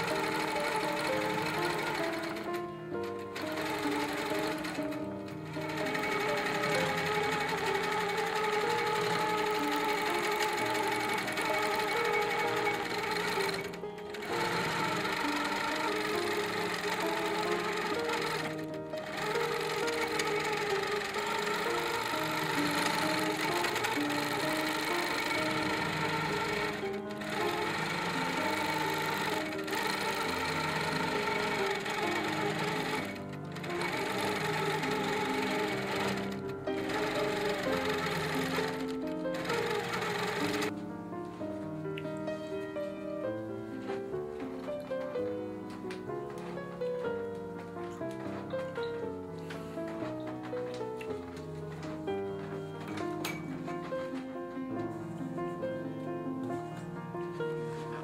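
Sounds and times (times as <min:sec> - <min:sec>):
quilting machine stitching rapidly: 0:00.0 - 0:40.7
background music with melody: 0:00.0 - 0:58.0.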